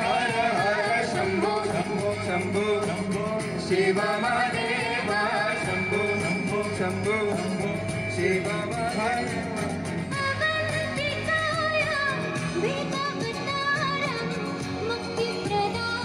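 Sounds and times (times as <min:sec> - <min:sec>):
voices singing together: 0:00.0 - 0:11.2
acoustic and electric guitar: 0:00.0 - 0:16.0.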